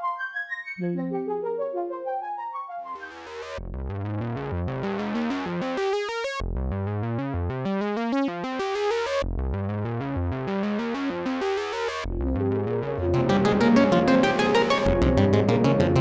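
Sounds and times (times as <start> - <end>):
fast sequenced synthesizer pattern: 0.8 - 16.0
synthesizer bass line: 9.4 - 16.0.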